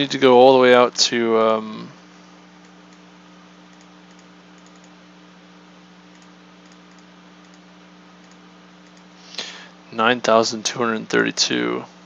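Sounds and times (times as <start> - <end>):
steady low hum: 0.0 - 12.0
computer keys and mouse clicking: 3.7 - 5.0, 6.1 - 7.6, 8.2 - 9.1.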